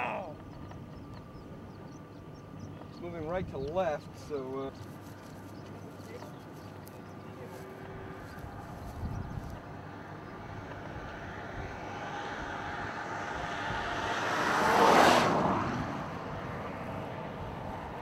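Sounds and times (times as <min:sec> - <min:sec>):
vehicle passing by: 0:04.0 - 0:18.0.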